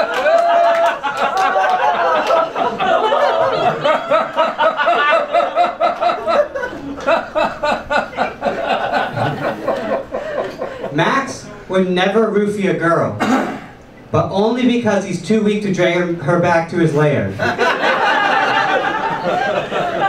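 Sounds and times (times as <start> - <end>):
audience laughing: 0.0 - 11.0, 17.4 - 20.0.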